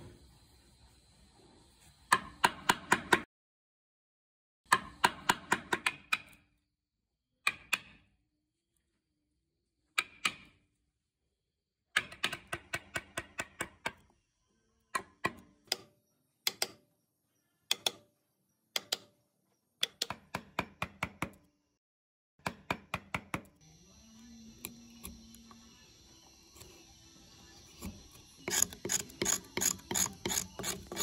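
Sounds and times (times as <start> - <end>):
chisel scraping wood: 27.7 - 31.0.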